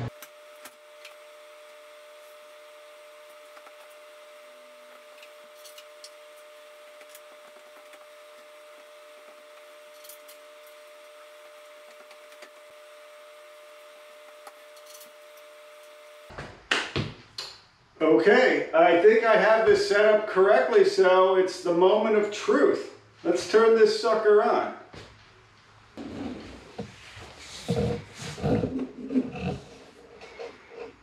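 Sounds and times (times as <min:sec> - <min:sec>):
room hum: 0:00.0 - 0:31.0.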